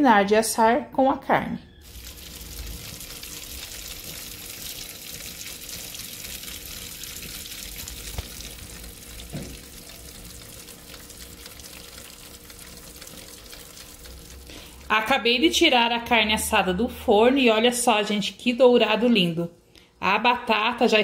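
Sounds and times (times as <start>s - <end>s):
meat sizzling in fat: 1.8s - 14.8s.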